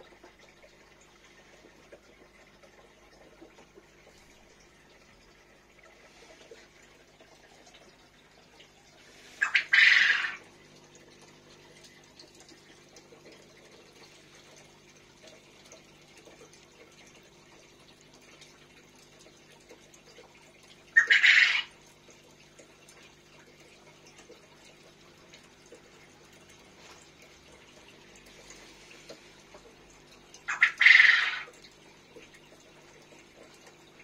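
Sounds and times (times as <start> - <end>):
aquarium filter hum: 0.0 - 34.0
faint trickling water: 0.0 - 34.0.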